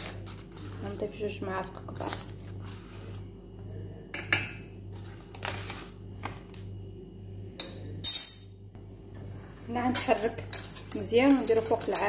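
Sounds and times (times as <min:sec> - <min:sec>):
metal spoon clinking on saucepan: 0:09.9 - 0:12.0.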